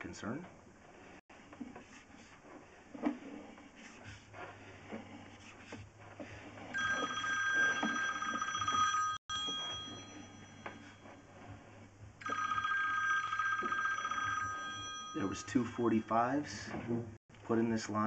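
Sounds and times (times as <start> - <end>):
phone ringing: 6.8 - 11.2, 12.2 - 16.7.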